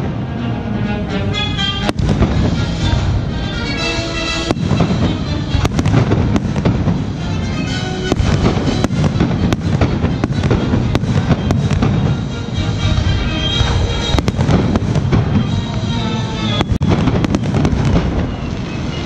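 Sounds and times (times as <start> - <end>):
crackling rumble: 0.0 - 19.0
firework shells bursting: 1.9 - 15.9.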